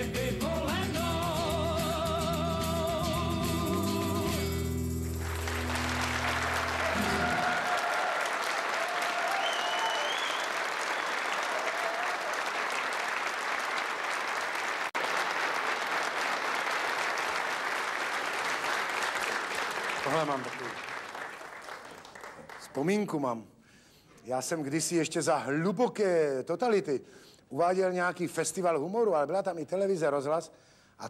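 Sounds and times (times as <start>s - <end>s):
audience applause: 5.0s - 22.8s
crowd shouts: 6.6s - 10.3s.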